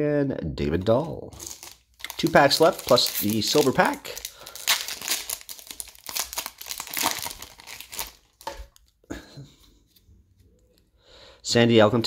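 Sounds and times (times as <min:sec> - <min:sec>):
foil wrapper crinkling: 0:01.3 - 0:08.9.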